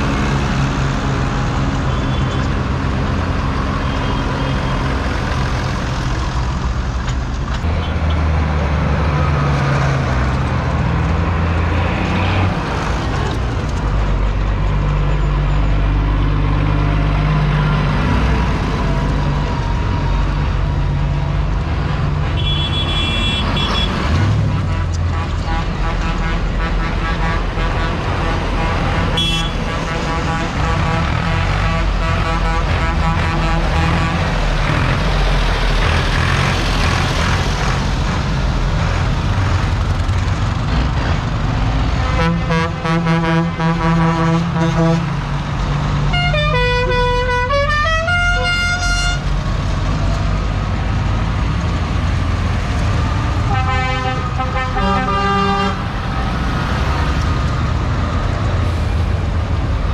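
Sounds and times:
diesel engines rumbling past: 0.0s - 59.9s
vehicle horn blasts: 22.4s - 23.9s, 29.2s - 34.2s, 46.1s - 49.2s, 53.5s - 55.8s.

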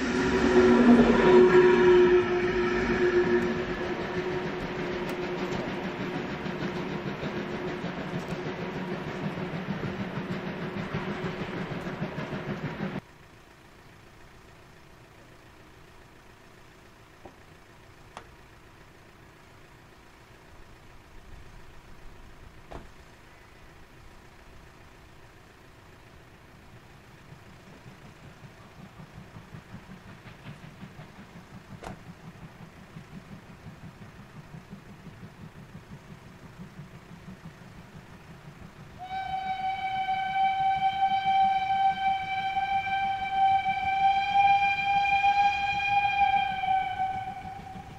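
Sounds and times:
steam locomotive whistle: 0.0s - 9.0s, 39.0s - 47.9s
steam train noise: 0.0s - 47.9s.

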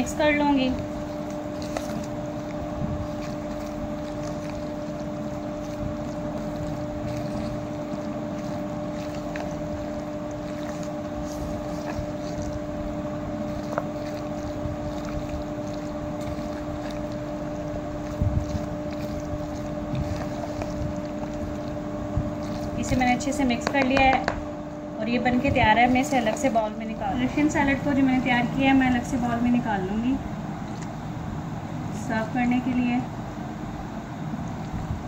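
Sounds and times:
low drone with hum: 0.0s - 35.0s
spoon stirring salad in bowl: 0.2s - 24.4s, 25.3s - 27.9s.

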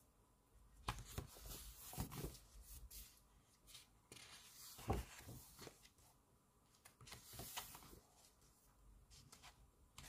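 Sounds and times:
book pages turning: 3.7s - 6.0s, 6.7s - 8.2s.

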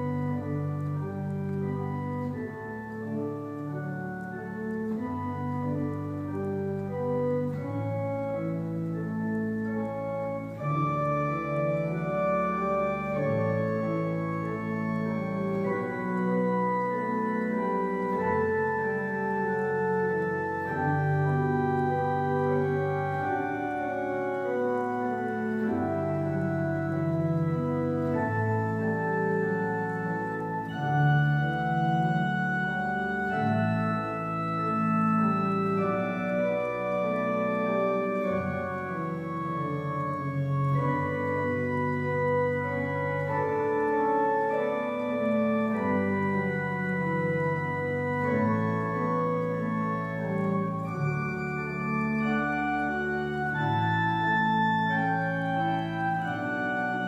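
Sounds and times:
deep organ pedal bass: 0.0s - 57.0s
organ chords: 0.0s - 57.0s.

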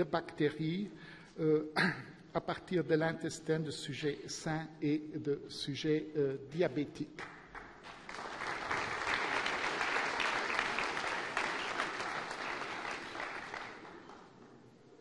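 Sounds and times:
audience applauding: 7.2s - 14.6s.

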